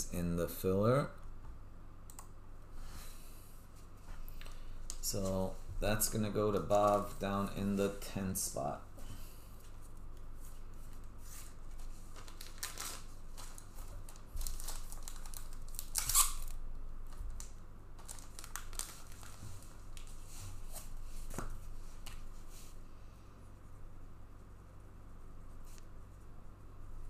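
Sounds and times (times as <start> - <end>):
packaging torn and crinkled: 12.1 - 20.1.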